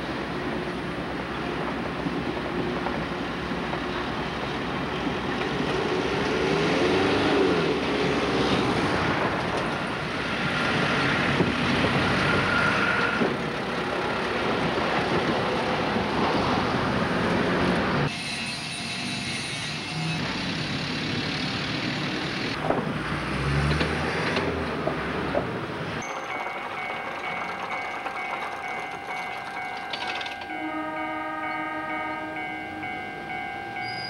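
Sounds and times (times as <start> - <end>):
traffic rushing past: 5.6 - 14.6, 20.2 - 26.0
passing car engine: 6.1 - 9.1, 22.8 - 25.3.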